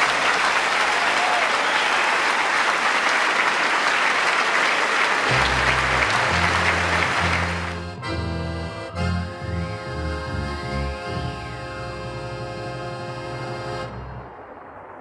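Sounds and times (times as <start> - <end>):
audience applauding: 0.0 - 8.0
accordion music: 5.3 - 14.2.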